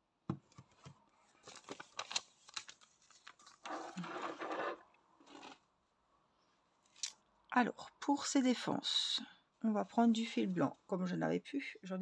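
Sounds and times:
rustling and rubbing: 1.2 - 5.6.

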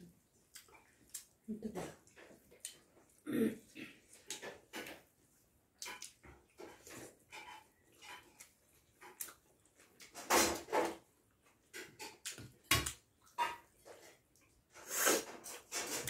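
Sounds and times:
hands mixing food on plates: 0.0 - 16.0
people chewing and lip smacking: 0.2 - 5.1, 5.7 - 10.2.

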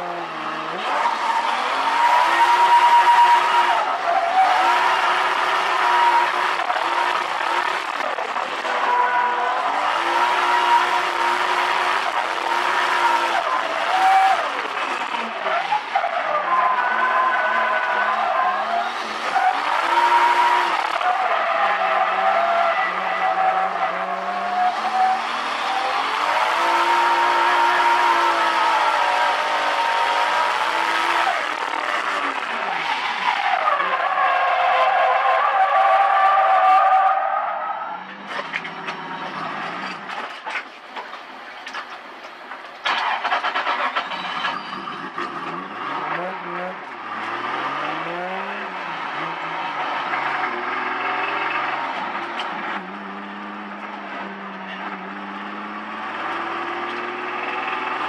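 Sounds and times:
car engine revving: 0.0 - 37.0, 45.0 - 58.0
tyres skidding and squealing: 0.0 - 58.0
car engine rattling clatter: 38.3 - 46.1.

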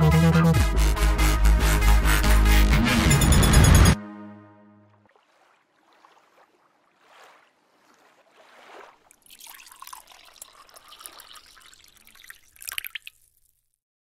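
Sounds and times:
soft liquid swishes: 4.9 - 13.5
water trickling and dripping: 5.0 - 13.8.

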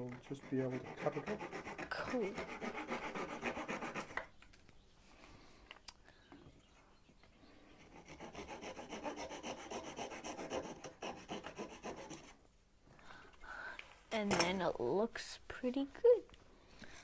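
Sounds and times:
hand saw cutting wood: 0.0 - 4.2, 7.9 - 12.4.

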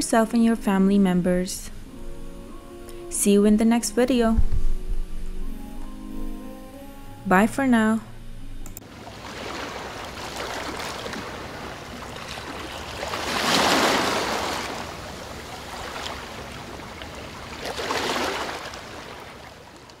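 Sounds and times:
ocean waves washing: 8.8 - 20.0.

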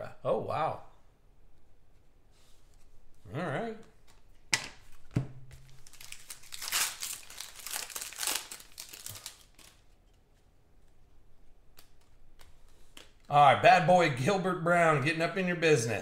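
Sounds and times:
foil wrapper tearing and crinkling: 5.6 - 10.0.

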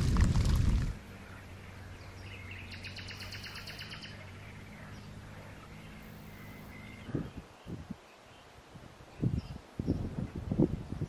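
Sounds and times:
bird trilling: 1.2 - 7.4.

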